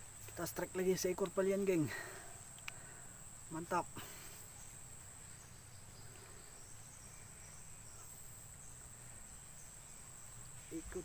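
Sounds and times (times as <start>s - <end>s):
crickets buzzing: 0.0s - 11.0s.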